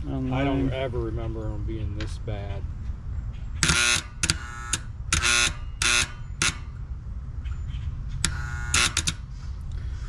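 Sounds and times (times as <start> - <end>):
electrical contactor buzzing: 3.6 - 6.9, 8.2 - 9.3.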